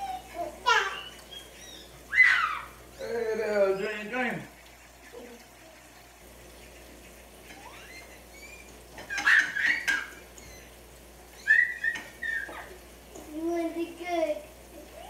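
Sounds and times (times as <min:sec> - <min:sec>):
toddler squealing: 0:00.0 - 0:02.8, 0:07.6 - 0:10.7, 0:11.4 - 0:12.8.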